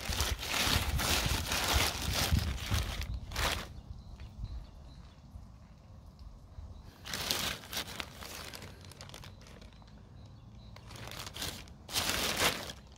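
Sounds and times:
plastic garbage bag rustling: 0:00.0 - 0:03.8, 0:06.9 - 0:10.0, 0:10.8 - 0:12.9.

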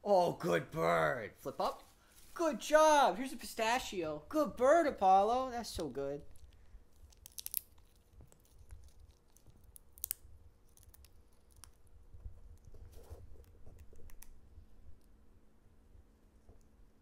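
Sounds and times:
parrot cracking nut shell: 0:06.3 - 0:11.9.

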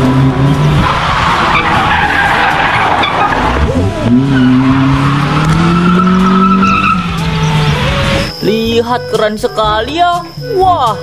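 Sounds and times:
car engine revving: 0:00.0 - 0:08.5
tyres skidding: 0:00.0 - 0:11.0.

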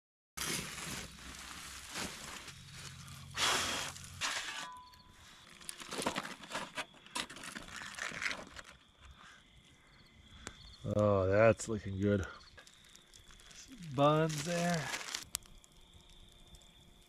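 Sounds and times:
aluminium foil crinkling: 0:00.4 - 0:08.8, 0:12.5 - 0:17.0
digging through ash and coals: 0:00.4 - 0:09.6, 0:12.1 - 0:16.6.

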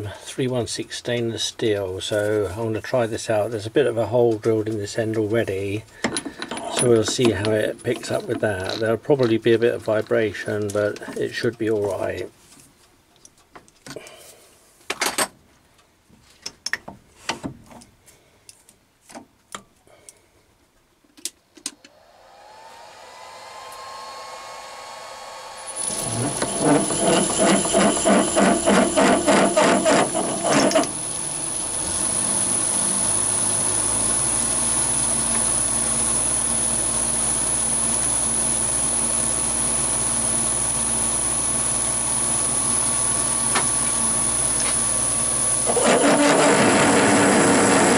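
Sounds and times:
high whine of cutting: 0:21.7 - 0:47.9
lathe motor humming: 0:21.8 - 0:47.9
drill chatter: 0:21.9 - 0:47.9.

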